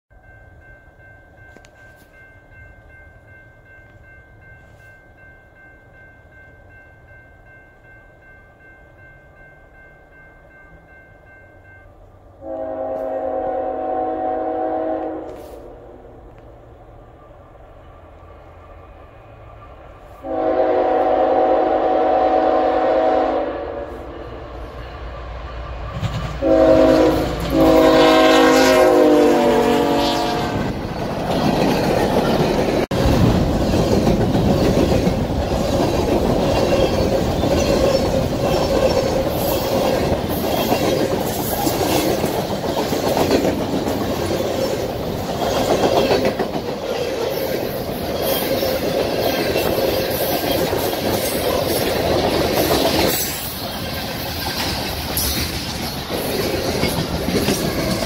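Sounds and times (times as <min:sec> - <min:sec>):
locomotive horn blasts: 0:12.4 - 0:15.9, 0:20.2 - 0:24.2, 0:26.4 - 0:30.7.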